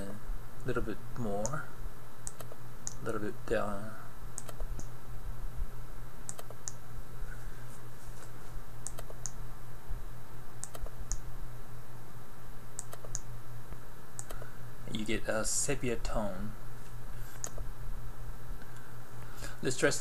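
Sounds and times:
low electrical hum: 0.0s - 20.0s
computer mouse button clicking: 2.2s - 3.0s, 6.3s - 6.8s, 8.8s - 9.4s, 10.6s - 11.2s, 12.8s - 13.2s, 14.2s - 14.4s.

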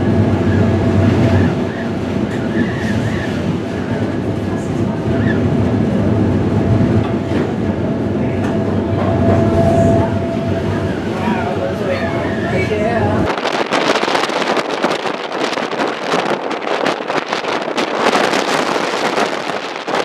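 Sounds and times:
streetcar motors and wheels running: 0.0s - 20.0s
held whine: 8.2s - 13.3s.

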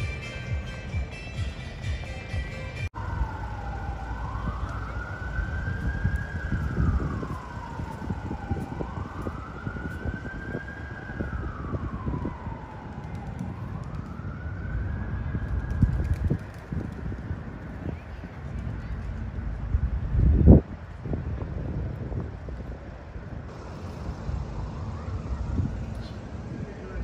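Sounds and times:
siren wailing: 2.9s - 16.1s, 23.5s - 27.0s
low rumble: 23.2s - 27.0s.

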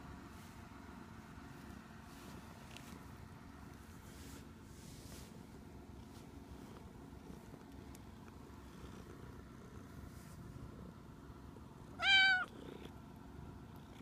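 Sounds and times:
cat meowing: 12.0s - 12.6s.

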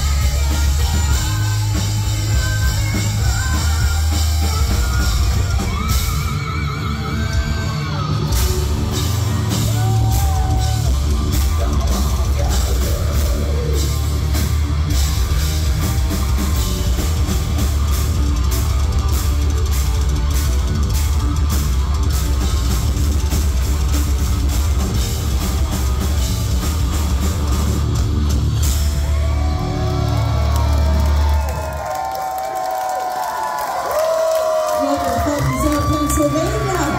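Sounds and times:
heavy metal band playing: 0.0s - 32.0s, 34.0s - 36.9s.

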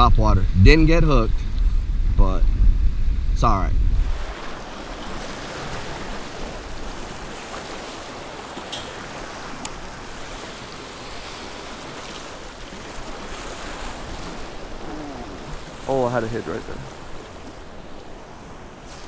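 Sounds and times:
waves splashing against rocks: 4.0s - 19.0s.

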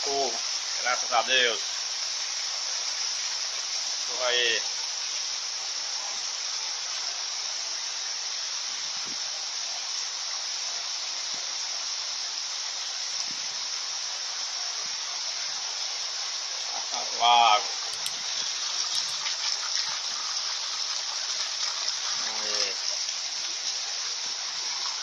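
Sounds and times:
heavy rain falling: 14.5s - 25.0s.

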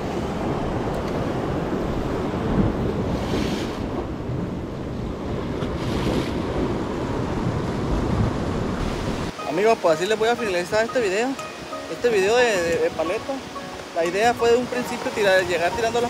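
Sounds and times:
wind buffeting microphone: 0.0s - 9.4s
waves splashing against rocks: 0.0s - 16.0s.

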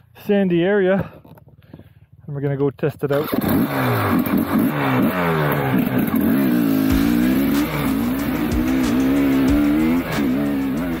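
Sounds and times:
dirt bike engine revving: 3.2s - 11.0s.

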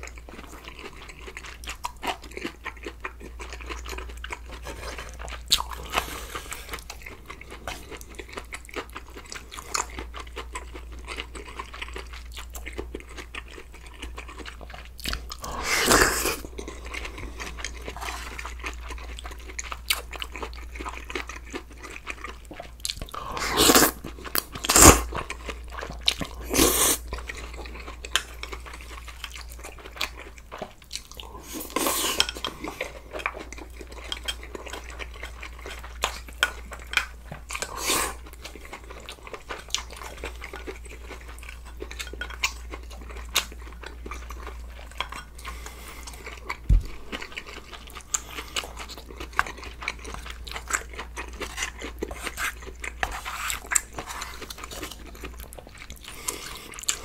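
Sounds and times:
chewing and crunching food: 0.0s - 57.0s
slurping broth from spoon: 23.4s - 24.0s.

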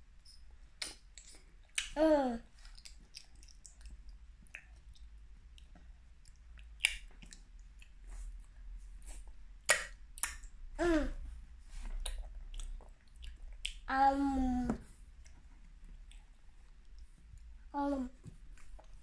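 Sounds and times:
toddler chewing with lip smacks: 2.6s - 10.5s, 11.7s - 13.9s.

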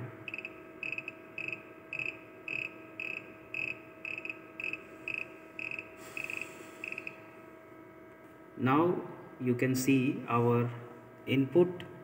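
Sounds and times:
steady electrical hum: 0.0s - 12.0s
high buzzy chirp: 0.2s - 7.3s.

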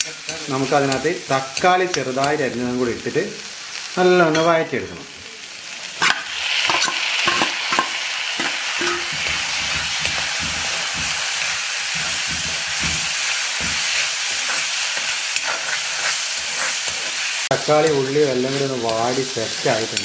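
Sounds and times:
tomatoes sizzling in hot oil: 0.0s - 20.0s
steel ladle scraping pan: 6.0s - 20.0s.

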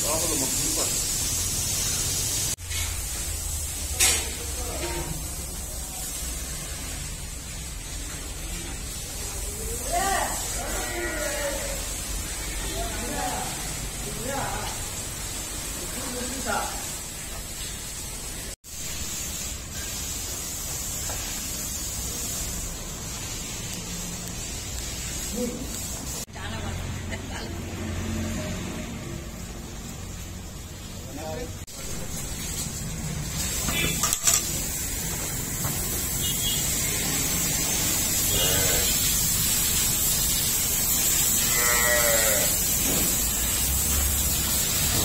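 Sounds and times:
hiss-like background noise: 0.0s - 45.0s
livestock bleating: 10.6s - 11.7s, 38.3s - 39.0s, 41.4s - 42.6s.

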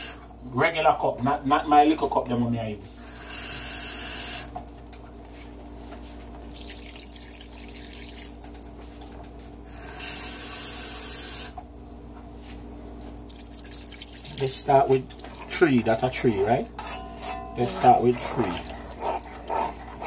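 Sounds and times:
quiet pouring and splashing: 5.2s - 8.8s, 13.3s - 16.8s, 17.8s - 20.0s
water gushing into pot: 6.4s - 8.8s, 13.3s - 16.8s, 17.6s - 20.0s.

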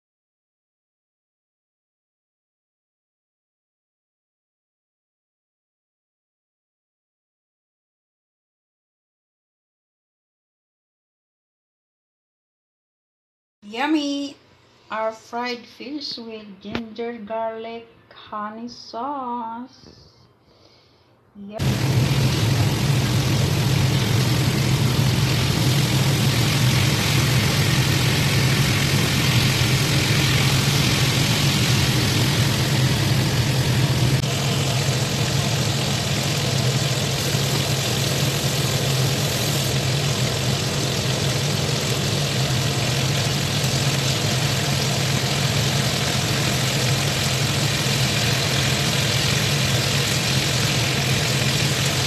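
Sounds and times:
fish sizzling in hot oil: 21.6s - 52.0s
low hum: 21.6s - 52.0s.

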